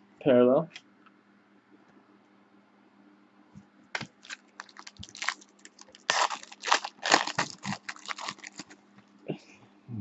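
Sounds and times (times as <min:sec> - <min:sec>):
foil wrapper tearing and crinkling: 0:04.0 - 0:08.8.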